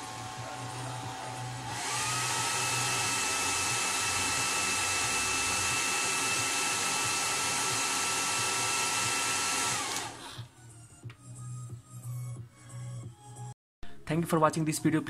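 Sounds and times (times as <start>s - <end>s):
hair dryer blowing: 0.0s - 10.5s.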